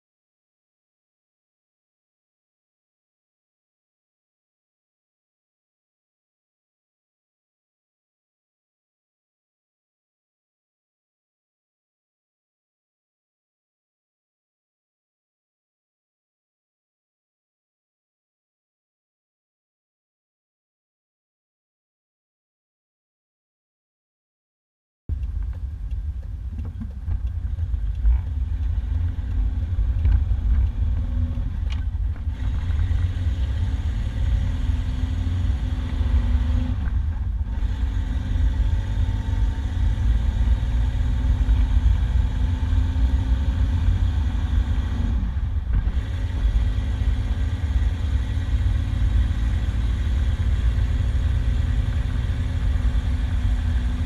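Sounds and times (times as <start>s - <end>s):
engine drone: 25.1s - 54.0s
road and wind rumble: 25.1s - 54.0s.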